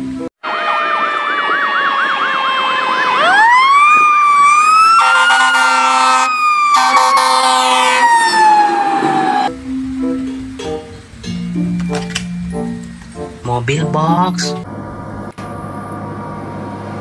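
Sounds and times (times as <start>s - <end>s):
fire engine siren: 0.4s - 10.0s
horn blasts: 4.9s - 8.2s.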